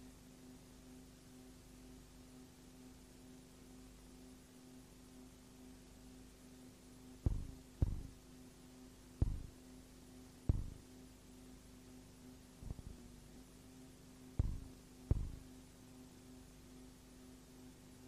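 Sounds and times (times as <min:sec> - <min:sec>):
low electrical hum: 0:00.0 - 0:18.0
dull thumps: 0:07.3 - 0:08.2, 0:09.2 - 0:09.6, 0:10.5 - 0:10.8, 0:14.4 - 0:15.5.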